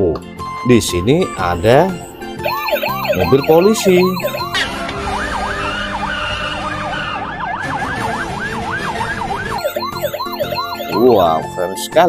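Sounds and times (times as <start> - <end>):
toy siren warbling: 1.4 - 4.8, 9.6 - 11.2
police siren wailing: 2.4 - 11.1.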